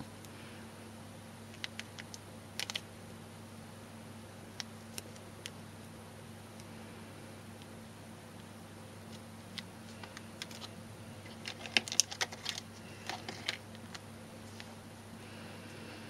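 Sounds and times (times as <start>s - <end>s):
cards clicking and rustling: 1.5s - 2.8s, 9.1s - 14.7s.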